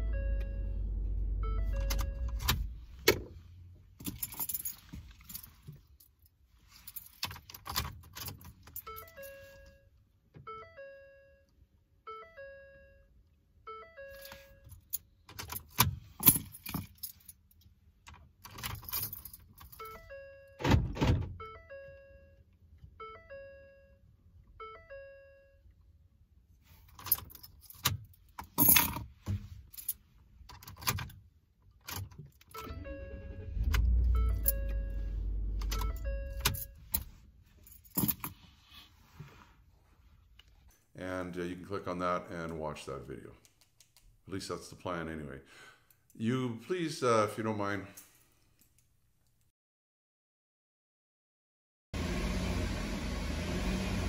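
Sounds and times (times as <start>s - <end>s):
keys jangling in ignition: 1.7s - 2.8s, 4.0s - 9.7s, 14.1s - 20.1s, 26.8s - 29.1s, 29.7s - 38.4s
two-note warning chime: 34.3s - 36.7s.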